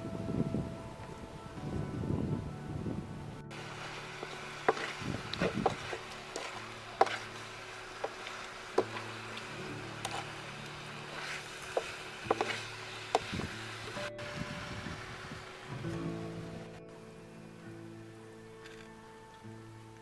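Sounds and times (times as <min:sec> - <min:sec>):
food sizzling: 0:03.5 - 0:19.6
utensil scraping a wok: 0:03.6 - 0:14.1.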